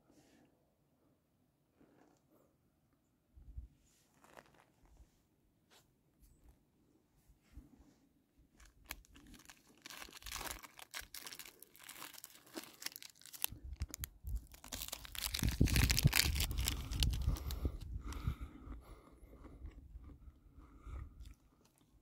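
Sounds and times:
plastic wrapper rustling: 8.6s - 17.8s.

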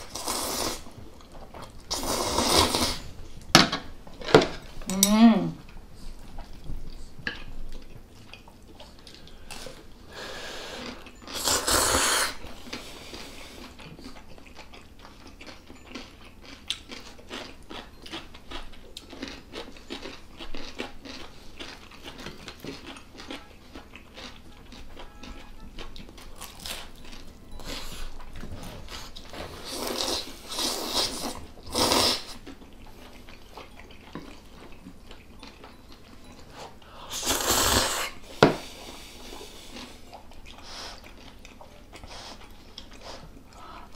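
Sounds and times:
slurping noodles: 0.0s - 0.8s, 1.9s - 3.1s, 10.2s - 12.4s, 29.6s - 32.4s, 37.1s - 38.2s
chewing and crunching: 5.6s - 37.2s, 38.1s - 43.9s.

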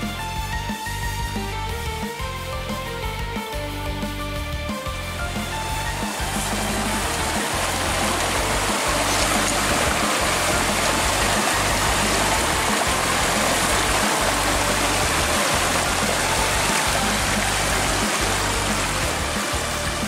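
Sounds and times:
music with pulsing bass line: 0.0s - 20.0s
stream rushing over rocks: 5.2s - 20.0s.

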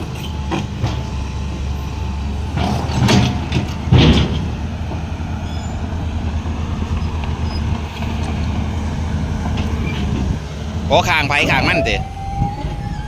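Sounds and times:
heavy diesel engine running: 0.0s - 13.0s.

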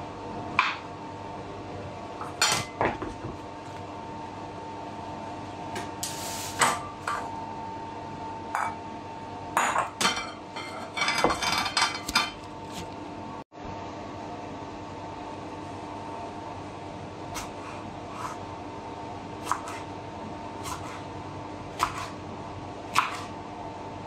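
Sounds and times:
steady hum: 0.0s - 24.0s
utensils and dishes clinking: 9.6s - 12.5s.

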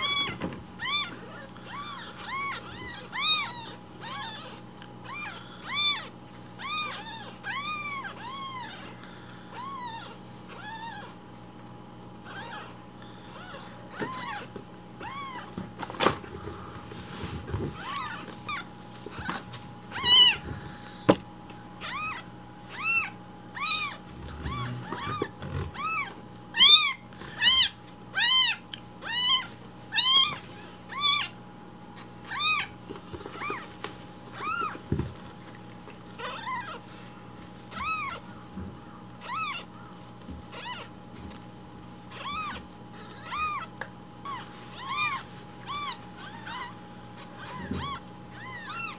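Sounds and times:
kitten meowing: 0.0s - 8.9s, 9.5s - 11.1s, 12.2s - 15.5s, 17.8s - 20.4s, 21.8s - 31.4s, 32.0s - 33.6s, 34.3s - 34.8s, 36.2s - 36.8s, 37.7s - 38.2s, 39.2s - 39.7s, 40.5s - 40.9s, 42.1s - 48.9s.

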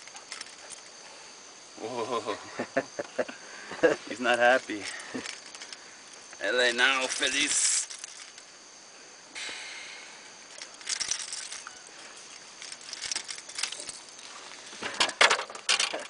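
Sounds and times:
rustling handling noise: 4.0s - 8.6s, 10.4s - 16.0s.

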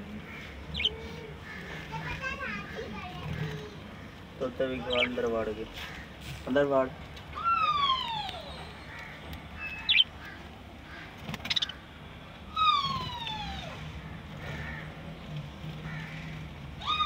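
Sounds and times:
budgerigar chirp: 0.7s - 1.0s, 4.8s - 5.2s, 9.6s - 10.1s.

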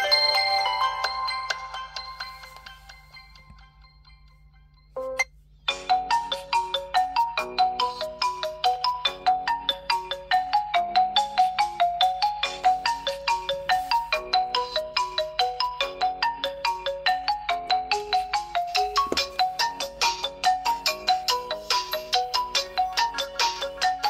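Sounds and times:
phone ringtone melody: 0.0s - 24.0s.

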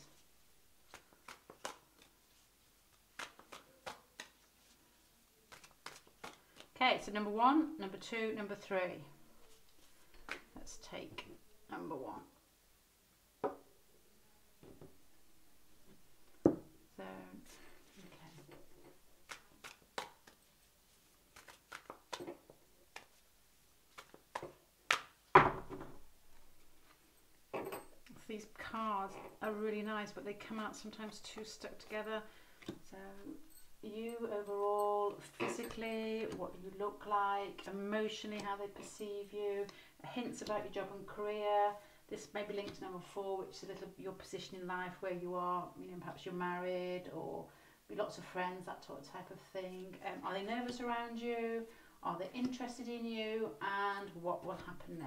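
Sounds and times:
cards tapping and rustling: 0.9s - 2.4s, 3.1s - 4.5s, 5.5s - 6.7s, 21.3s - 23.2s, 23.9s - 25.8s.

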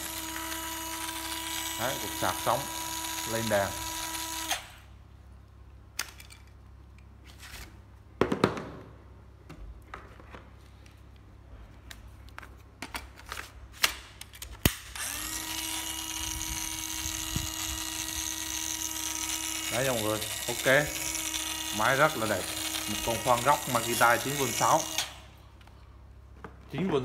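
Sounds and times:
cordless drill motor running: 0.0s - 4.9s, 15.0s - 25.3s.

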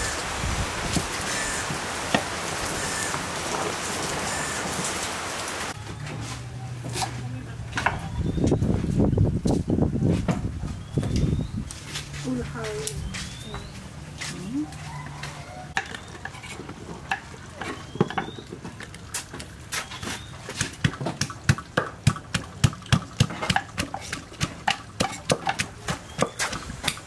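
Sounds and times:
wooden pestle pounding in mortar: 20.6s - 27.0s.

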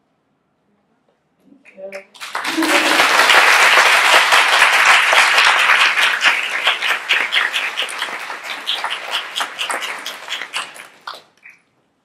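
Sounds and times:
audience applauding: 2.1s - 11.4s.

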